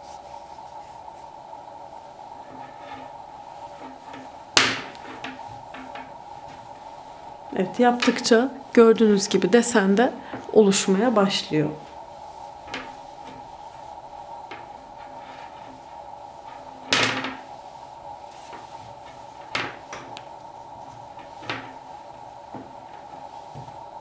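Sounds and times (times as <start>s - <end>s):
faint steady hum: 0.0s - 24.0s
hoop knocking against table: 3.8s - 6.6s, 12.7s - 13.4s, 14.5s - 15.8s, 16.5s - 17.5s, 19.4s - 20.3s, 21.2s - 21.8s.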